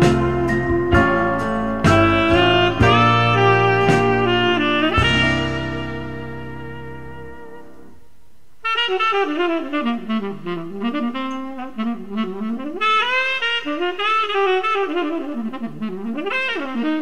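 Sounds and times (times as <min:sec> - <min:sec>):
music accompaniment: 0:00.0 - 0:08.0
saxophone-like lead line: 0:00.0 - 0:08.0, 0:08.6 - 0:17.0.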